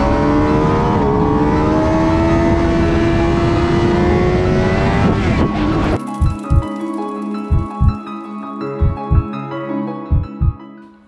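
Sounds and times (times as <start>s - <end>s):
motorcycle engine accelerating: 0.0s - 6.6s.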